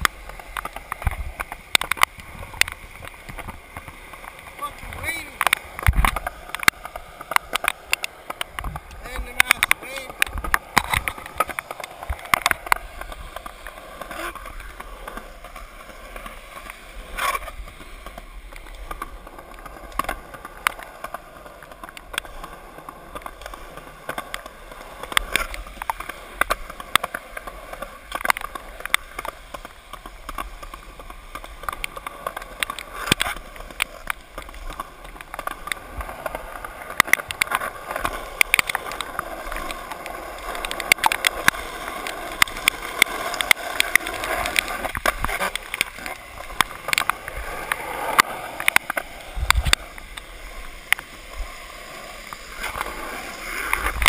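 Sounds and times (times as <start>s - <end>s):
skateboard clacks and knocks: 0.0s - 54.0s
skateboard wheels on wet pavement: 0.0s - 54.0s.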